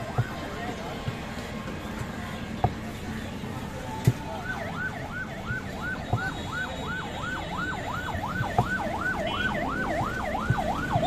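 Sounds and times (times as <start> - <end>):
siren wailing in fast yelp: 4.4 - 11.0.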